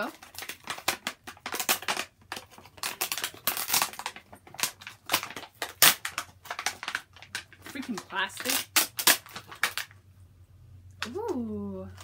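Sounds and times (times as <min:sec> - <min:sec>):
plastic packaging crinkling and cracking: 0:00.0 - 0:10.0.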